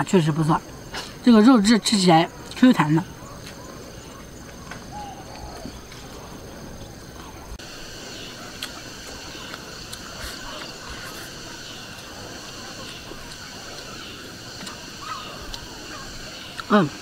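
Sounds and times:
insects chorus: 0.0s - 17.0s
person chewing: 8.4s - 14.0s.

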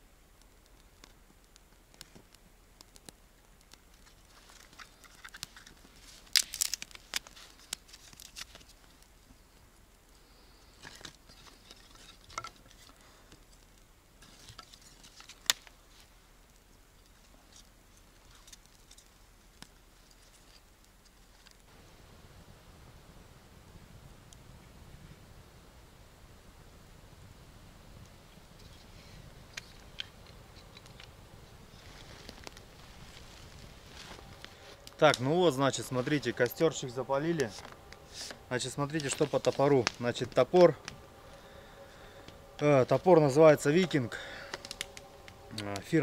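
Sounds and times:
dry kindling snapping and crackling: 0.3s - 21.8s, 28.0s - 46.0s.

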